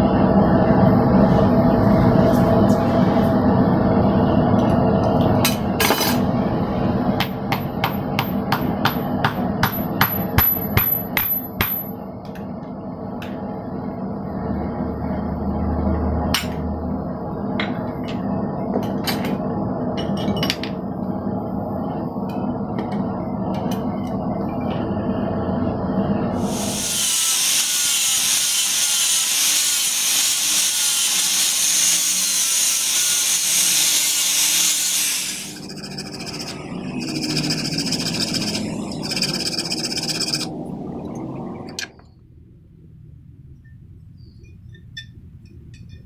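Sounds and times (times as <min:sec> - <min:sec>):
steady background hum: 0:00.0 - 0:46.0
hammer striking steel on anvil: 0:07.2 - 0:12.0.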